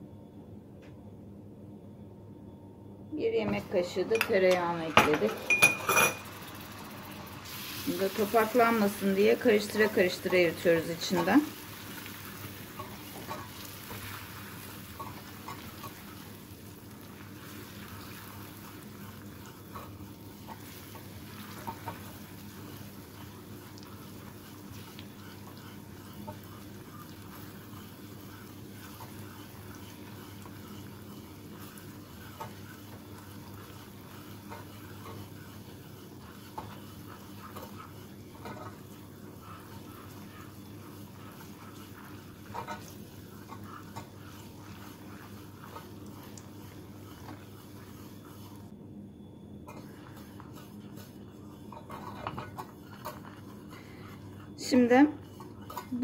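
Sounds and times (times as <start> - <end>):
bubbling caramel sizzling: 3.5 - 48.8, 49.6 - 56.0
whisk clicking against pan: 19.4 - 48.4.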